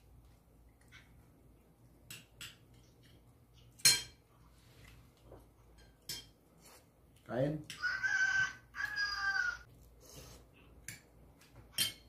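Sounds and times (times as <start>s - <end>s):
cutlery clinking on dishes: 2.1s - 4.3s, 5.7s - 6.4s, 10.9s - 12.0s.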